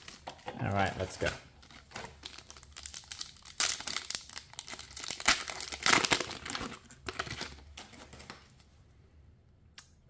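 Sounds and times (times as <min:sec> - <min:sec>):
foil wrapper tearing and crinkling: 0:01.0 - 0:08.4.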